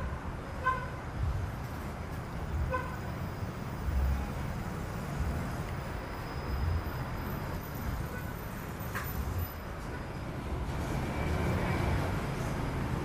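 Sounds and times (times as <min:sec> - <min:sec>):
railcar engine and wheels rumbling: 0:00.0 - 0:13.0.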